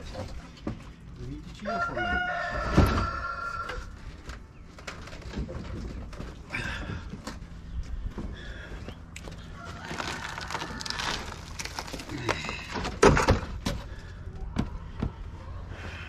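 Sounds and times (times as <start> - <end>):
wood panel cracking and splintering: 9.8 - 13.8.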